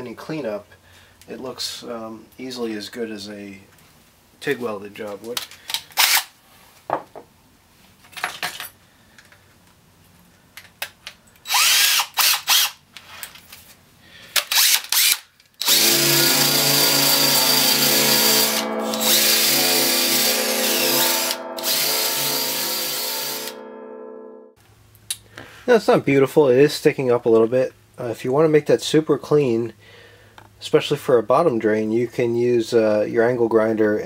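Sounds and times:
power tool motor running: 0:11.5 - 0:12.8, 0:14.5 - 0:23.6.

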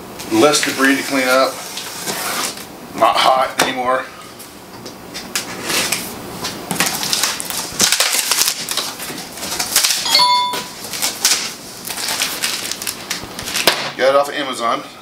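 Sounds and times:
cardboard flaps scraping and rustling: 0:00.7 - 0:02.7
packing tape being slit: 0:06.7 - 0:10.1, 0:10.8 - 0:13.9
brief ringing ding: 0:10.1 - 0:10.7.

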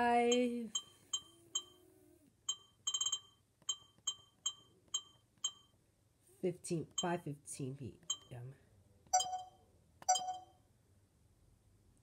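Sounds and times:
camcorder electronic beeps: 0:09.2 - 0:10.5.

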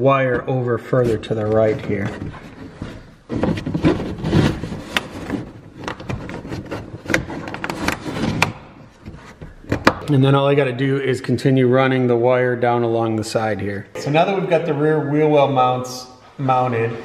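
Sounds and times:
plastic rubbing and scraping: 0:00.9 - 0:10.1.

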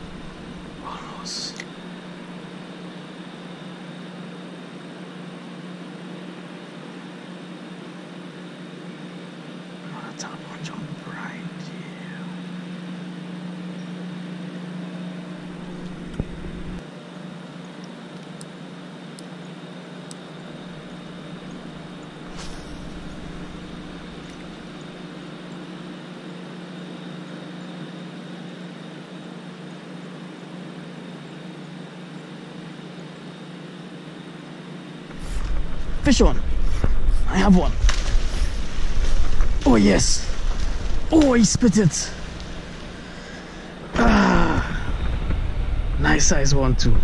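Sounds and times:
low motor hum: 0:00.0 - 0:03.2, 0:09.7 - 0:16.8, 0:20.4 - 0:25.7, 0:35.0 - 0:47.0.

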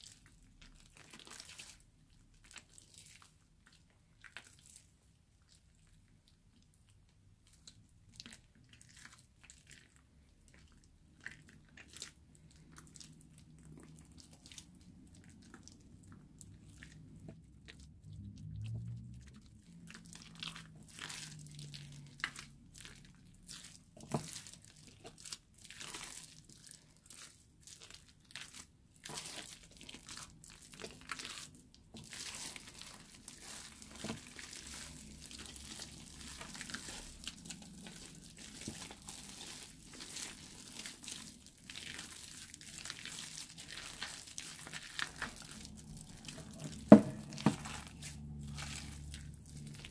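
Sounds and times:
slime crackling and squishing: 0:00.0 - 0:49.9.

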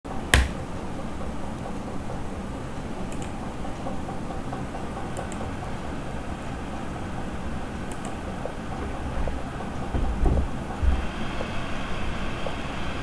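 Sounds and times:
sharp click: 0:00.3 - 0:00.6, 0:03.1 - 0:03.4, 0:07.9 - 0:08.2.

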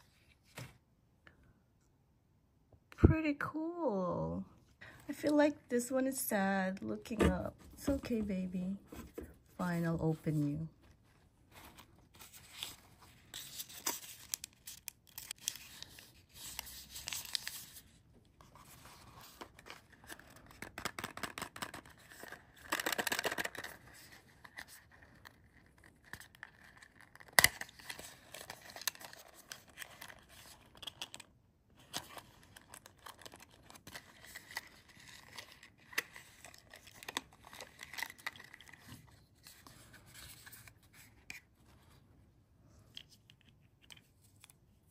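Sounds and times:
paper packaging crinkling and tearing: 0:11.7 - 0:17.9, 0:18.6 - 0:40.8.

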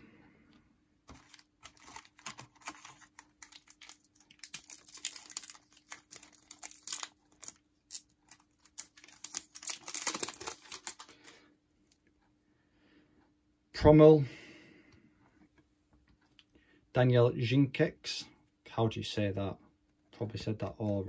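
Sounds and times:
foil wrapper crinkling and tearing: 0:01.1 - 0:11.4.

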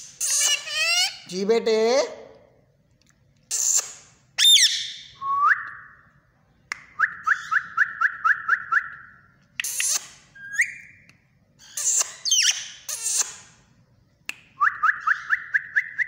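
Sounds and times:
parakeet whistling and calling: 0:00.2 - 0:01.2, 0:03.5 - 0:06.0, 0:07.0 - 0:13.4, 0:14.6 - 0:16.0.

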